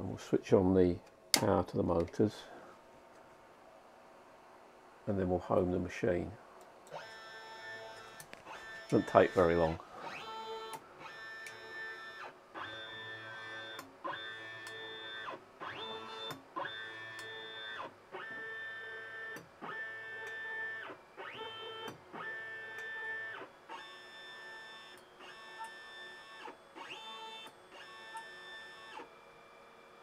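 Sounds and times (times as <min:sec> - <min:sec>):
stepper motors whining: 0:06.9 - 0:29.1.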